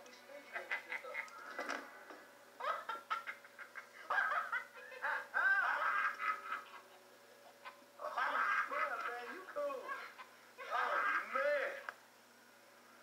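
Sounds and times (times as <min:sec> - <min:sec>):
high-pitched giggling: 0:02.6 - 0:11.4.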